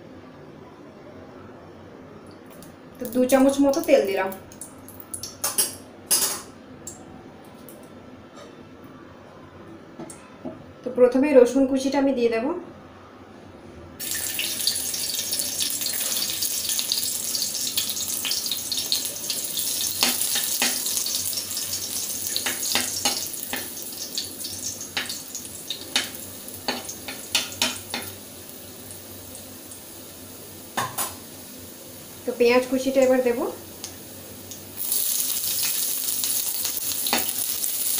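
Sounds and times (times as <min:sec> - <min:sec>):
garlic sizzling in hot oil: 0:14.0 - 0:37.9.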